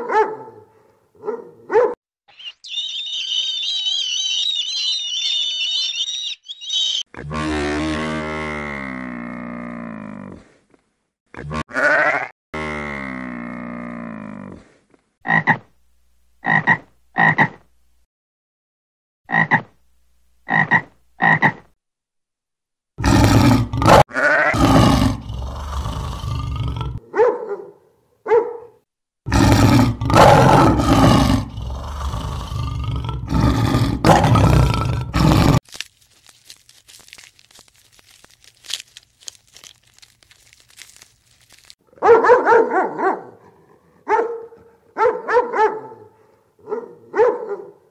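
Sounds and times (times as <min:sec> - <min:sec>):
dogs barking: 0:00.0 - 0:02.0, 0:27.0 - 0:28.8, 0:42.0 - 0:47.8
lion roaring: 0:23.0 - 0:27.0, 0:29.3 - 0:35.6.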